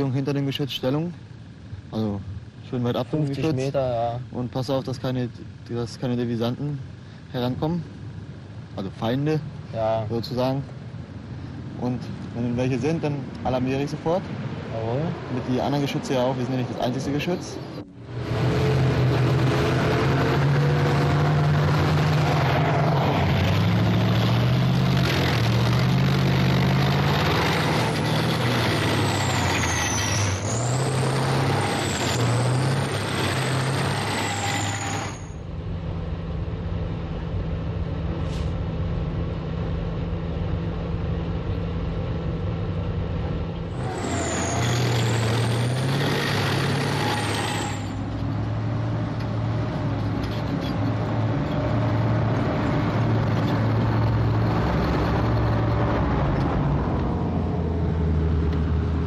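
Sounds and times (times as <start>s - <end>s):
diesel engine running hard: 1.9s - 59.0s
high squeal: 27.4s - 35.5s, 43.7s - 48.2s.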